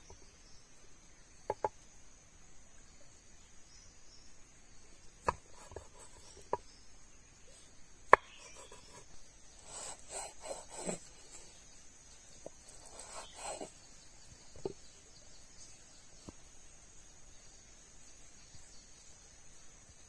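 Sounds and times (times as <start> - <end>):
high insect drone: 0.0 - 20.0
scraping on cutting board: 9.6 - 11.4, 12.7 - 13.7.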